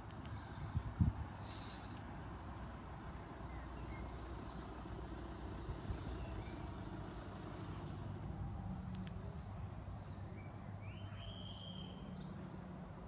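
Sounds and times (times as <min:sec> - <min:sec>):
distant road traffic rumble: 0:00.0 - 0:13.0
faint bird chirps: 0:10.3 - 0:12.3.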